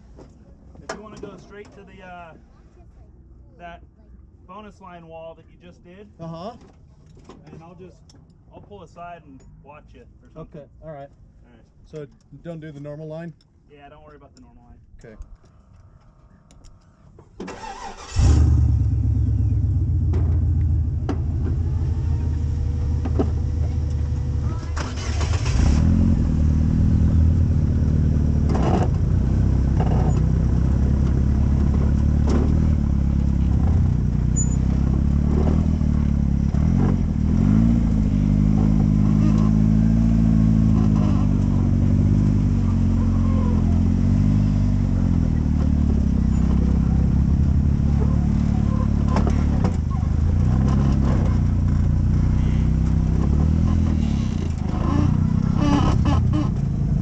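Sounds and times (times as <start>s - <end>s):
buggy engine revving: 17.4s - 57.0s.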